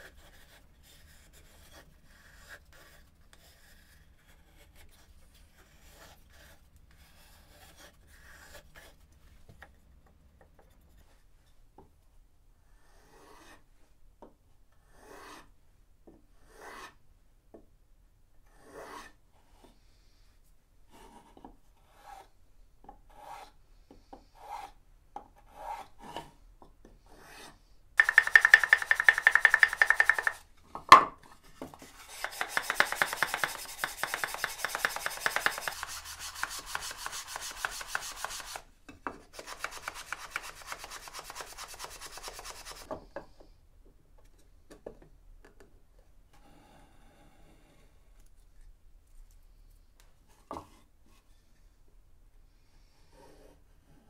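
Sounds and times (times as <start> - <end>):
light rubbing strokes on wood: 27.2 - 30.4, 31.8 - 38.6, 39.3 - 42.9
sharp knock: 28.0 - 30.4
sanding sponge rasping on wood: 32.0 - 38.6, 39.4 - 42.9.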